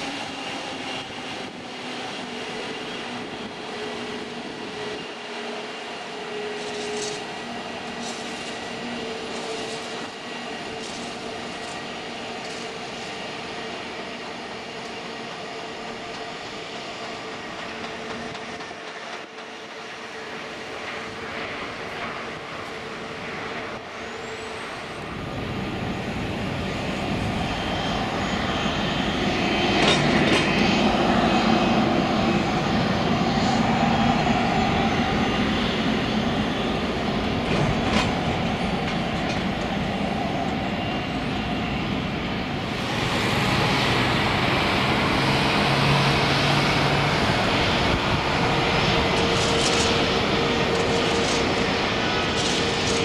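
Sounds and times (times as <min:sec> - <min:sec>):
jet engines roaring: 0:00.0 - 0:53.0
steady engine whine: 0:00.0 - 0:53.0.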